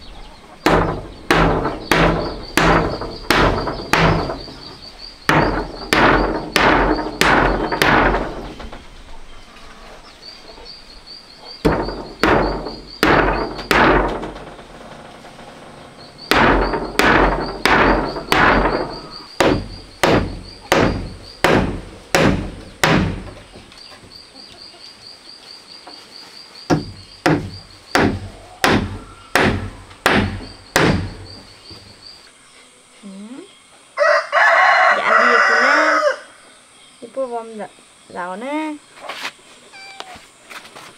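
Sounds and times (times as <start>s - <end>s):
pulsing insect chirp: 0.0s - 40.4s
hammer driving nails into wood: 0.7s - 4.6s, 5.3s - 8.6s, 11.6s - 14.4s, 16.3s - 23.4s, 26.7s - 31.2s.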